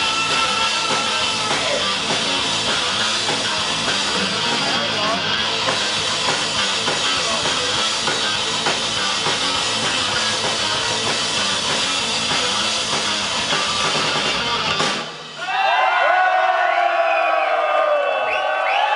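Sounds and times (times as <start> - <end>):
live heavy metal band: 0.0 - 17.6
crowd cheering and whooping: 15.4 - 18.9.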